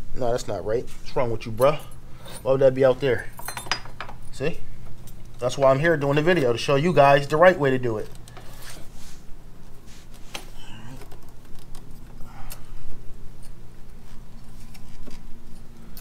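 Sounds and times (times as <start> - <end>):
steady low hum: 0.0 - 16.0
metal parts clicking and knocking: 3.4 - 4.3.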